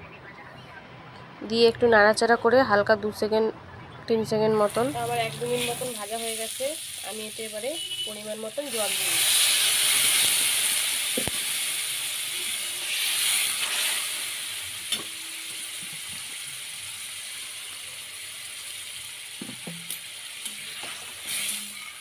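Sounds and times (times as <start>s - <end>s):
water sizzling in hot oil: 4.6s - 22.0s.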